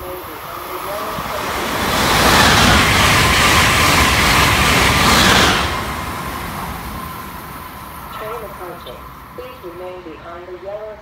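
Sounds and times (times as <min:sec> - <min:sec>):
electric train passing at speed: 0:00.0 - 0:11.0.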